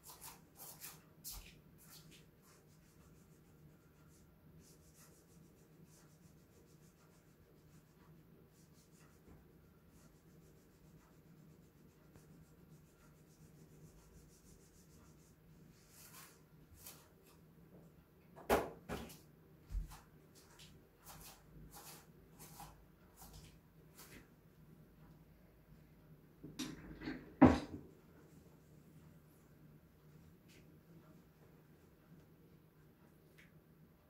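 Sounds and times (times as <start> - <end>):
faint steady hum: 0.4 - 18.4.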